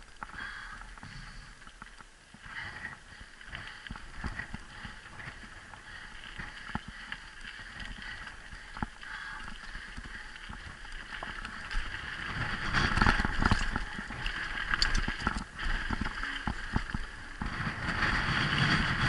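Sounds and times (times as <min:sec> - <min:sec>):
tyres rolling over dirt and gravel: 0:02.6 - 0:19.0
bike rattling and knocking: 0:06.4 - 0:19.0.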